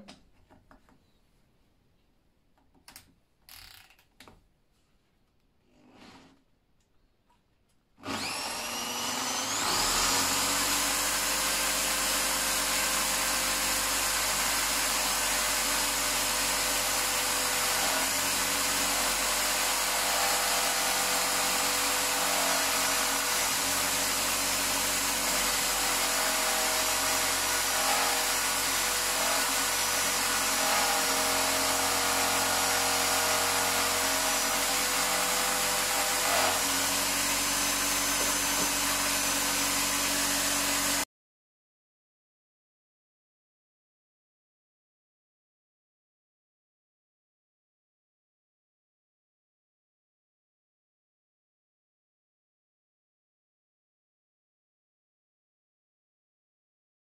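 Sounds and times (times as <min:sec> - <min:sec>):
electric drill spinning wire brush: 0:08.0 - 0:41.1.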